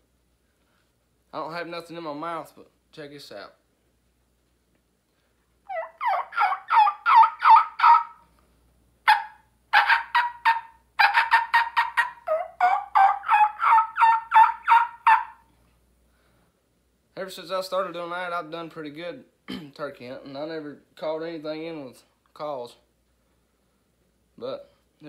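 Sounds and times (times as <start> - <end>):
man imitating turkey yelps: 5.7 - 8.2, 9.1 - 15.5.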